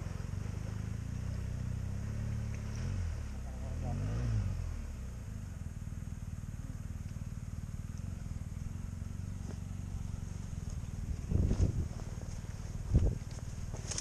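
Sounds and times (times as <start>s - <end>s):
motorcycle engine at low revs: 0.0s - 14.0s.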